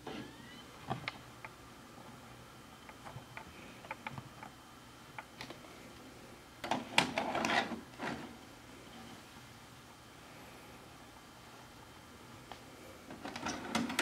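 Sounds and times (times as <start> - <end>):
tape deck loading mechanism clatter: 13.1 - 14.0.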